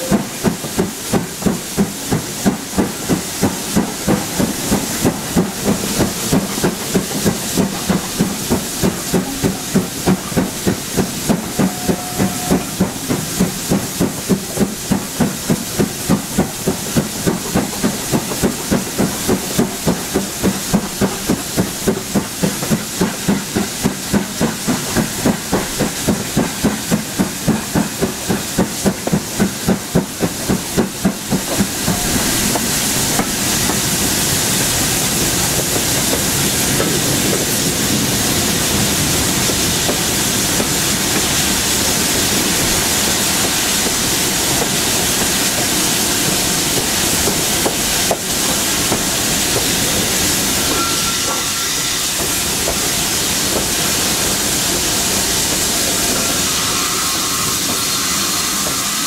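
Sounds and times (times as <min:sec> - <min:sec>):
steam hiss: 0:00.0 - 0:59.0
steam locomotive exhaust beats: 0:00.0 - 0:59.0.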